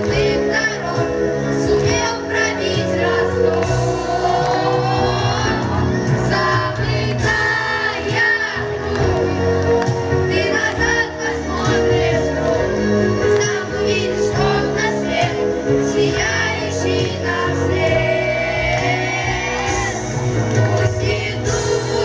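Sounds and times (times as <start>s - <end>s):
amplified backing music: 0.0s - 22.0s
children singing into microphones: 10.3s - 12.6s, 13.4s - 22.0s.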